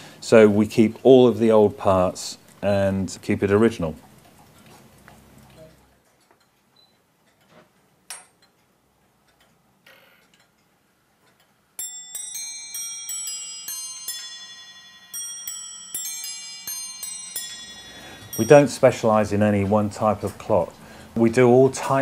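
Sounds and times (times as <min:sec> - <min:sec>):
clock chime on small bells: 0:11.8 - 0:20.2.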